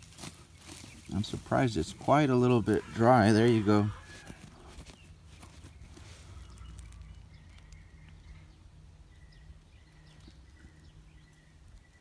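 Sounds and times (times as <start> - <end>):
hand scooping compost: 0.0 - 7.8
faint bird calls: 0.6 - 12.0.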